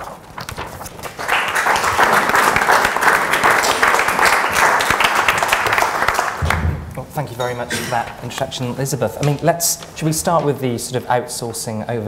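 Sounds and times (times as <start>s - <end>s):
audience applauding: 1.0s - 6.7s.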